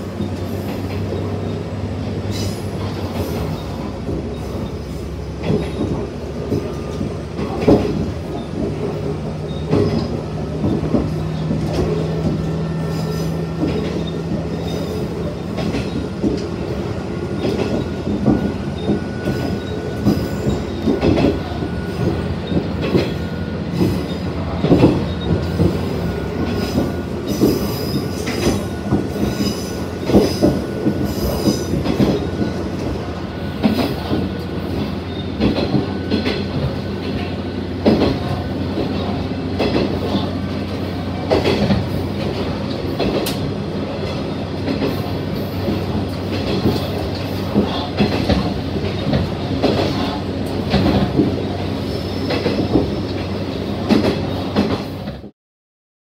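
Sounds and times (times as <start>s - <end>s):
railcar diesel engine drone: 0.0s - 55.3s
wheels clicking on rail joints: 0.0s - 55.3s.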